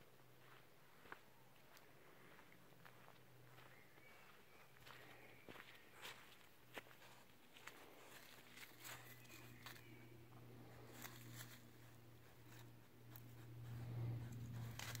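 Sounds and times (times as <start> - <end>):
steady low hum: 0.0 - 15.0
animal scratching in dry leaves: 8.0 - 15.0.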